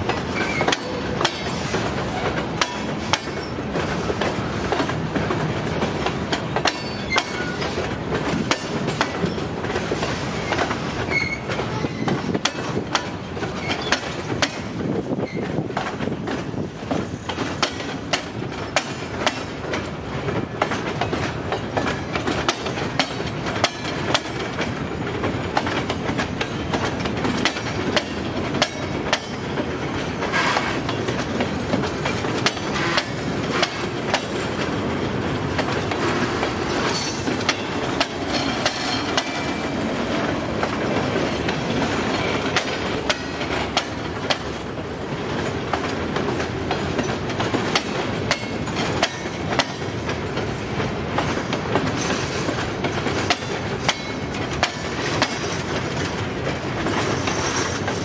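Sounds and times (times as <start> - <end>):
wheels clacking over rail joints: 0.0 - 58.0
high wheel squeals: 0.3 - 2.3, 6.7 - 7.8, 10.3 - 12.3.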